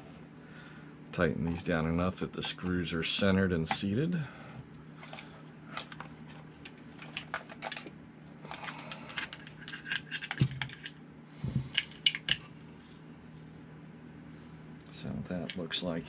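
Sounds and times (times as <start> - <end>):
small clicks and rattles of parts: 5.0 - 11.0, 11.6 - 12.5, 15.3 - 15.7.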